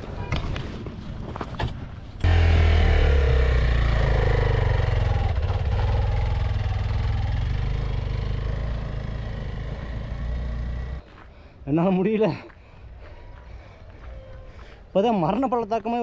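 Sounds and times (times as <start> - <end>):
motorcycle engine rumbling: 2.2 - 11.1.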